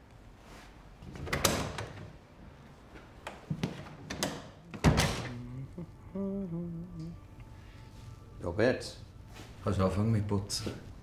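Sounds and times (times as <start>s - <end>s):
door closing thud: 4.1s - 5.4s.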